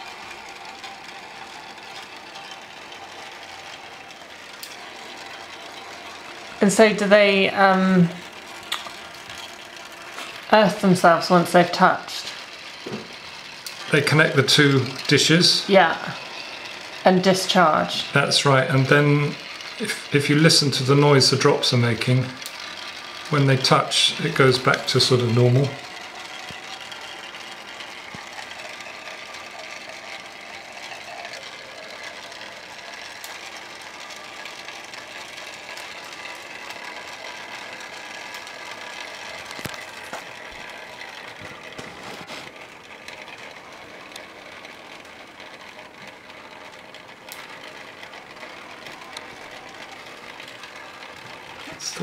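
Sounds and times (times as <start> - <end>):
sharp clicks: 0.0 - 10.6.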